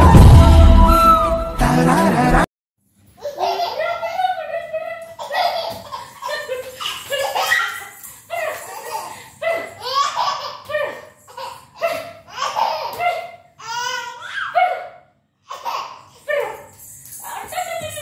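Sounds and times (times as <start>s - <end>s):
toddler laughing: 3.2s - 14.8s, 15.5s - 16.6s.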